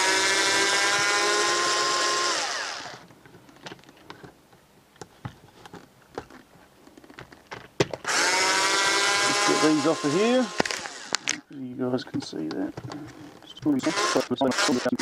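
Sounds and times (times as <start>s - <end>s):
cordless screwdriver whining: 0.0s - 3.0s, 8.0s - 11.4s, 13.8s - 15.0s.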